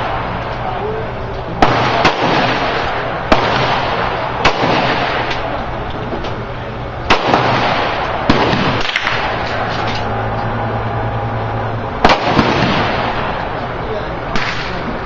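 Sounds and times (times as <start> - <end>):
pistol shots: 1.6 - 5.6, 7.0 - 10.2, 12.0 - 13.6, 14.3 - 15.0.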